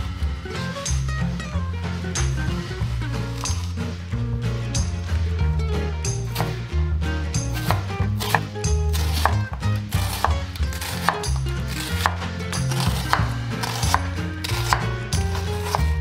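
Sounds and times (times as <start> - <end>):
background music with bass: 0.0 - 16.0
knife slicing onion: 2.0 - 4.0, 4.8 - 6.8, 7.4 - 16.0
knife tapping cutting board: 6.2 - 6.6, 7.4 - 16.0.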